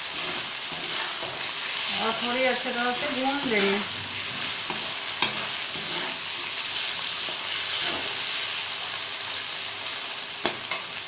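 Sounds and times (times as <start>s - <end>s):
metal spoon scraping pan: 0.0s - 6.2s, 7.2s - 8.3s
vegetables sizzling in oil: 0.0s - 11.0s.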